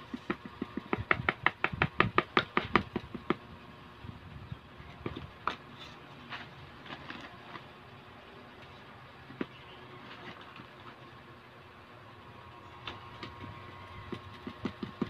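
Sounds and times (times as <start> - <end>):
scattered knocks: 14.1 - 15.0.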